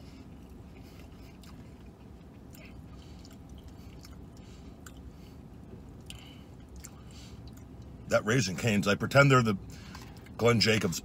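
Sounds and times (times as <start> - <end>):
man chewing food: 0.0 - 8.0
vehicle cabin hum: 0.0 - 11.0.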